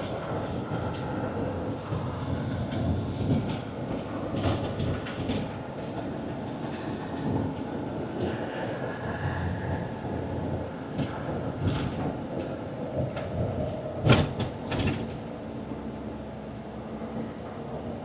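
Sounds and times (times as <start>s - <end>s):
road rumble inside vehicle: 0.0s - 18.0s.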